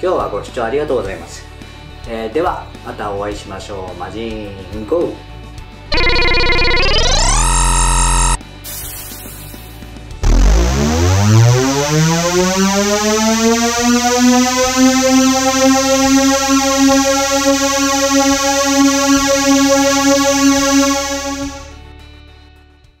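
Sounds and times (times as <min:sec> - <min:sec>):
rising synthesizer tone: 0:05.9 - 0:08.4, 0:10.2 - 0:21.8.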